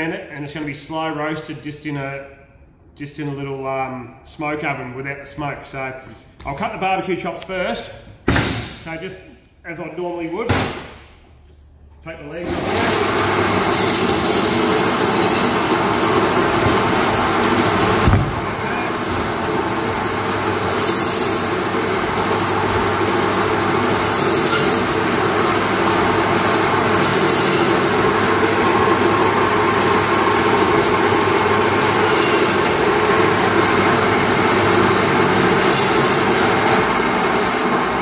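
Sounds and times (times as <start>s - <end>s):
band saw cutting meat and bone: 12.5s - 36.9s.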